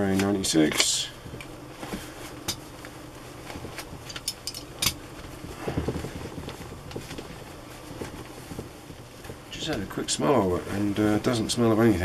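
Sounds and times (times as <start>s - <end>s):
fabric rustling and crinkling: 1.6s - 12.0s
sharp fabric crackles: 5.0s - 11.6s.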